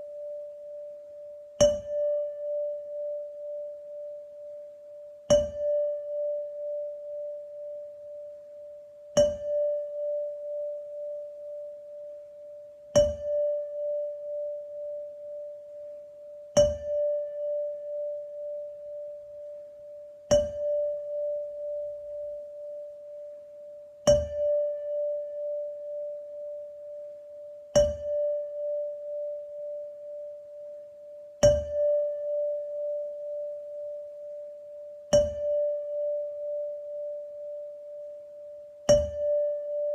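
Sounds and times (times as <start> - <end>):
metal chime struck with mallet: 1.6 - 2.3.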